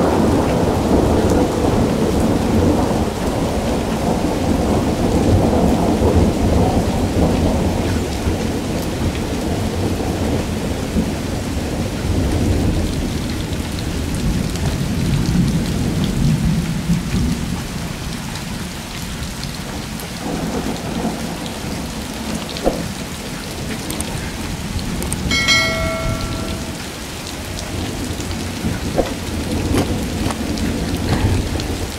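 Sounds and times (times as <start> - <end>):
heavy rain on puddles: 0.0 - 31.9
short steady pitched tone: 25.3 - 26.9.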